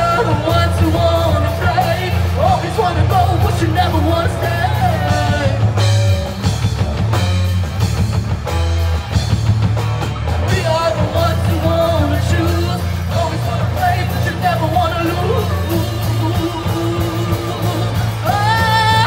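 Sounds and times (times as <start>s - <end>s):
person singing: 0.0s - 5.8s, 10.5s - 19.0s
rock band playing: 0.0s - 19.0s.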